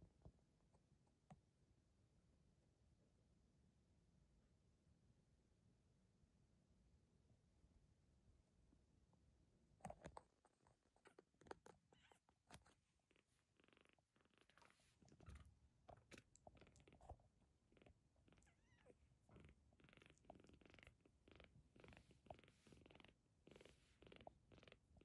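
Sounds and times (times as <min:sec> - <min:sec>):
kitten purring faintly: 0:09.8 - 0:25.0.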